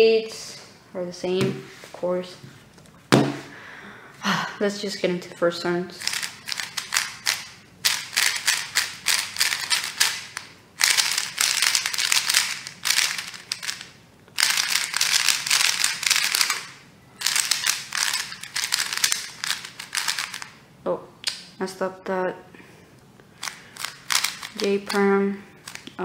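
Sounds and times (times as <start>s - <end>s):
puzzle cube plastic clicks: 6.0s - 20.5s, 23.4s - 25.0s, 25.6s - 26.0s.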